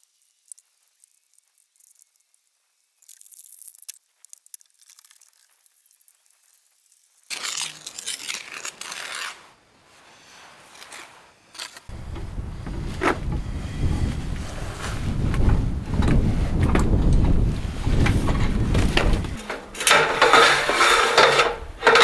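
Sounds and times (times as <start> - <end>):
trowel scraping mortar on stone: 7.3 - 11.9, 19.1 - 22.0
wind rumble on microphone: 11.9 - 19.5.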